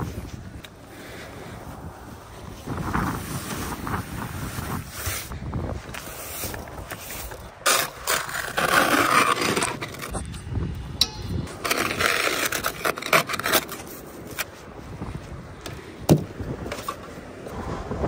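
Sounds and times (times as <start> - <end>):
ice scraper scraping windshield: 6.0 - 10.2, 11.5 - 14.4.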